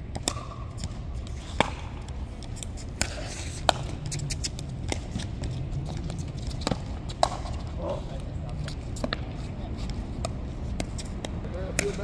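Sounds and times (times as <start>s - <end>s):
low steady background noise: 0.0s - 12.0s
ball bouncing on hard court: 0.1s - 8.3s.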